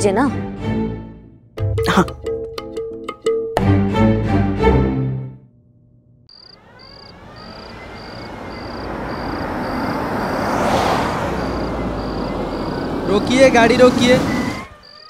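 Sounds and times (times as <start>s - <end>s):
music: 0.0s - 5.5s
cricket chirping: 6.3s - 15.0s
car driving past: 6.4s - 14.9s.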